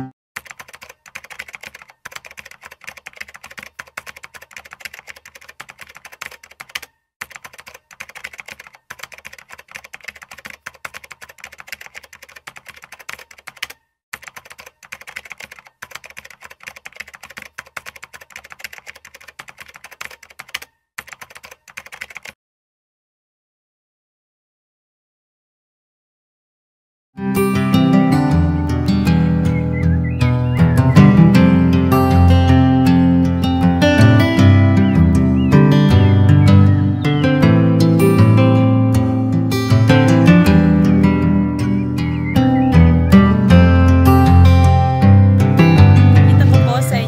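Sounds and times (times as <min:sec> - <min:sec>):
rapid keyboard typing: 0:00.4 - 0:22.4.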